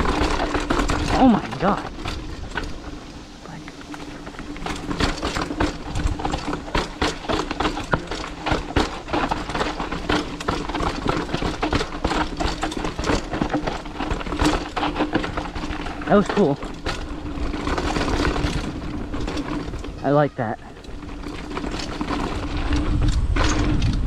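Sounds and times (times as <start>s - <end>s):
mountain bike rattling over trail: 0.0s - 24.0s.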